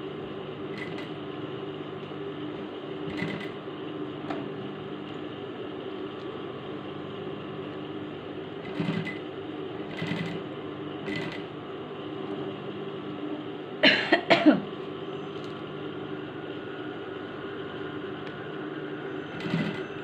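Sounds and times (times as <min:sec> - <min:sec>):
sewing machine humming: 0:00.0 - 0:01.3, 0:02.4 - 0:04.9, 0:06.8 - 0:13.4, 0:19.0 - 0:20.0
sewing machine stitching bursts: 0:08.6 - 0:09.2, 0:09.8 - 0:10.4, 0:11.0 - 0:11.5, 0:19.3 - 0:20.0.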